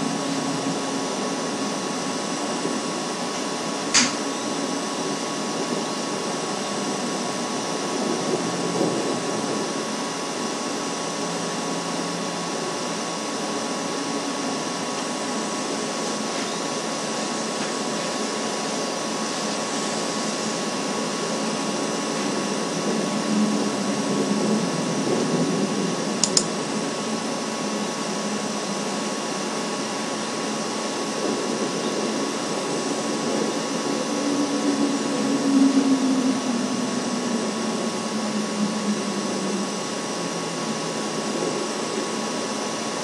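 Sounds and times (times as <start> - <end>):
sharp click: 3.9 - 4.2, 26.2 - 26.5.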